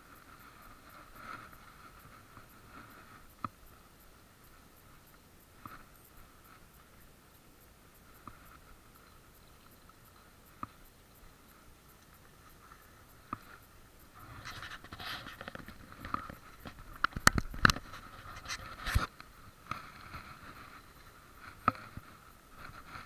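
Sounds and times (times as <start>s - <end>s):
scratching and rustling: 0.0s - 23.0s
sharp clicks: 14.4s - 20.2s.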